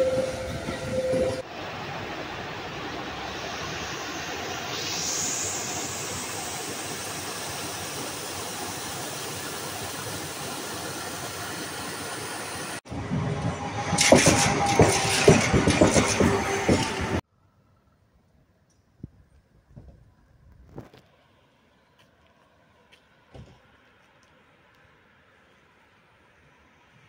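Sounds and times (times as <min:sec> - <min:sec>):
clattering with sharp knocks: 0:13.9 - 0:17.2.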